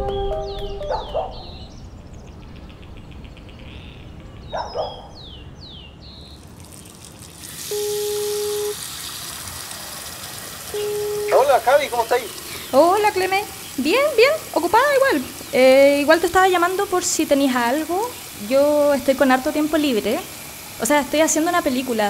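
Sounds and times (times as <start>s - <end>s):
running tap hiss: 6.4s - 22.0s
telephone ringback beep: 7.7s - 8.8s, 10.7s - 11.5s.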